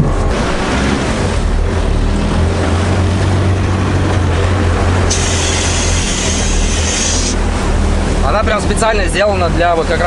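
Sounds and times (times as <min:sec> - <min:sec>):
engine low rumble: 0:00.0 - 0:10.0
hiss: 0:05.1 - 0:07.4.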